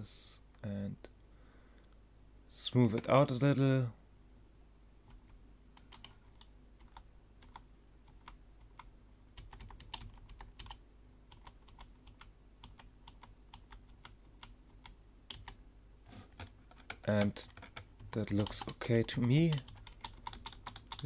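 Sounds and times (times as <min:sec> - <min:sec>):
keyboard key presses: 0:16.3 - 0:18.8, 0:19.5 - 0:21.0.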